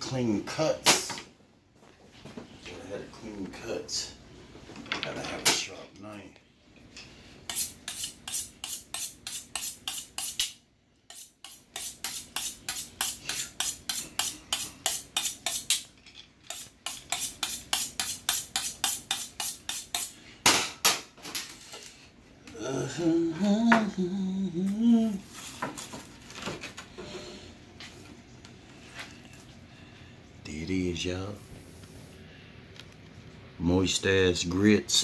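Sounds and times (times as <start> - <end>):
knife scraping on honing steel: 7.5 - 15.9, 16.5 - 20.1
man talking: 30.4 - 31.5, 33.6 - 35.0.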